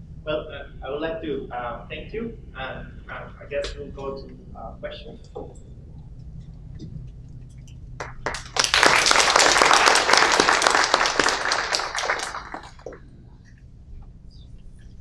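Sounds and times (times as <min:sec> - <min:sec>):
audience clapping: 0:08.0 - 0:13.0.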